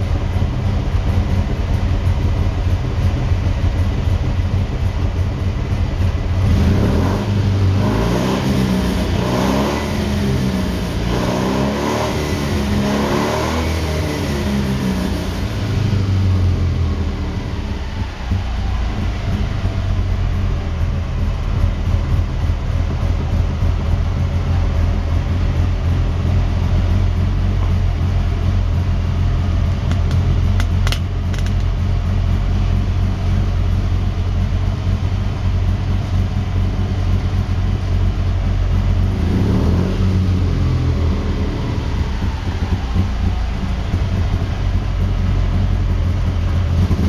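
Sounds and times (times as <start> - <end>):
flat-twin engine running: 0.0 - 7.8, 14.5 - 39.4, 40.1 - 47.0.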